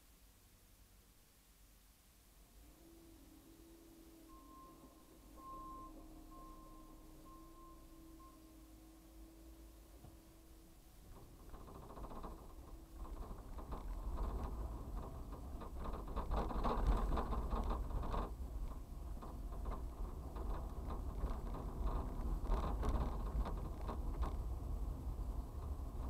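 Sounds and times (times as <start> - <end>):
vehicle engine and road rumble: 2.4 - 26.0
light rattling: 10.9 - 26.0.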